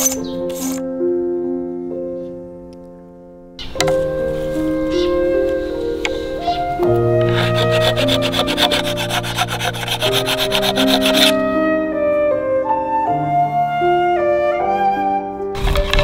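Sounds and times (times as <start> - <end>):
metal blade scraping bamboo ribs: 0.0 - 0.8, 7.2 - 11.4
background music sustained notes: 0.0 - 16.0.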